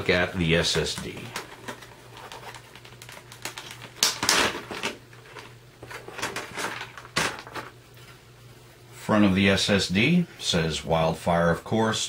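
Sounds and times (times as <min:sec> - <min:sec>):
plastic packaging crackling: 0:00.7 - 0:07.8.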